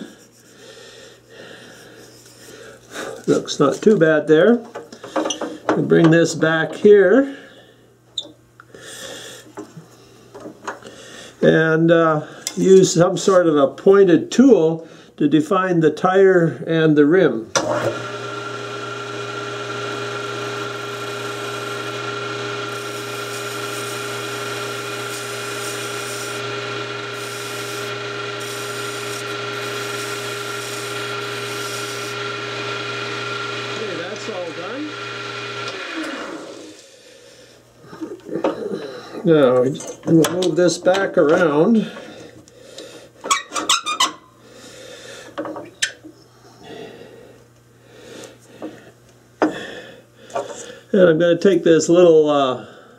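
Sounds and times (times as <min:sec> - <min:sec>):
small lathe humming: 0:17.6 - 0:36.9
hand tool scraping spinning wood: 0:17.7 - 0:36.8.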